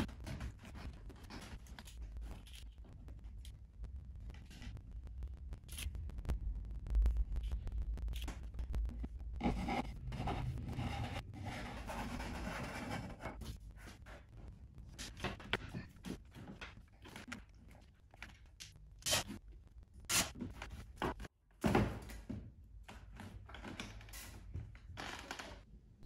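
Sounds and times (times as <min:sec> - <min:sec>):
pencil scratching on board: 0:09.4 - 0:14.2.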